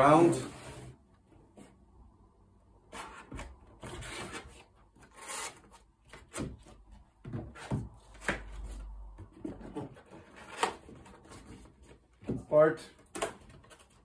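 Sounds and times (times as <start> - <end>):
cardboard scraping on tabletop: 0.2 - 1.0, 2.9 - 6.5
cardboard rustles and knocks: 6.2 - 12.5.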